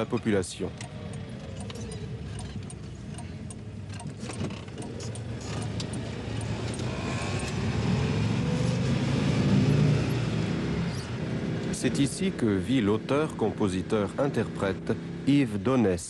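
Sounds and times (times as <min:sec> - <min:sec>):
car engine accelerating: 0:00.0 - 0:15.7
keys jangling in ignition: 0:00.2 - 0:03.3.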